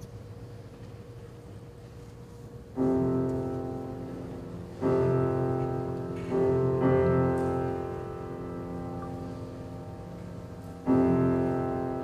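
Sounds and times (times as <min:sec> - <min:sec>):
piano chords: 0:02.6 - 0:12.0.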